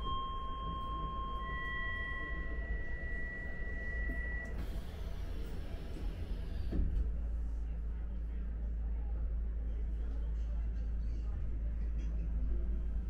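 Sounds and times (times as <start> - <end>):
electronic two-tone chime: 0.0 - 4.5.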